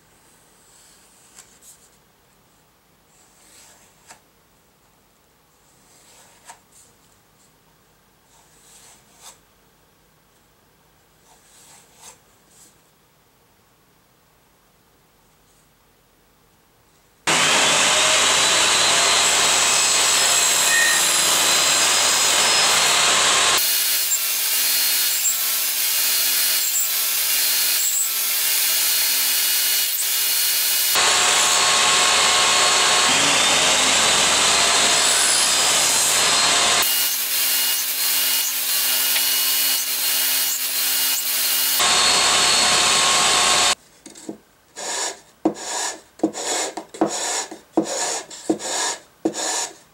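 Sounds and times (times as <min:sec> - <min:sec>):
table saw cutting wood: 0:17.3 - 0:43.8
rasp filing wood: 0:44.8 - 0:49.8.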